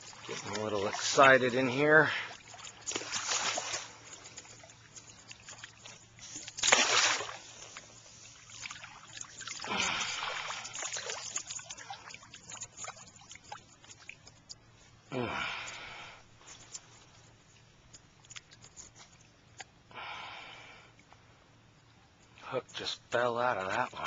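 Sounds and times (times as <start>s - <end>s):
fish splashing and thrashing: 0.0s - 14.7s.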